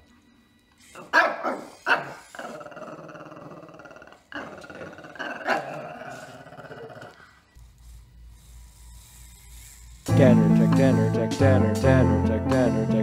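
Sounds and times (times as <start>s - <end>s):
small dog barking: 1.0s - 2.3s
dog growling: 1.0s - 7.5s.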